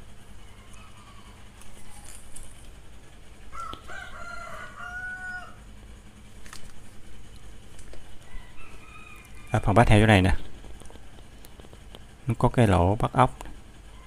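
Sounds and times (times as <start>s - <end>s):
rooster crowing: 0.3s - 2.5s, 3.4s - 5.8s, 8.1s - 10.0s, 13.8s - 14.0s.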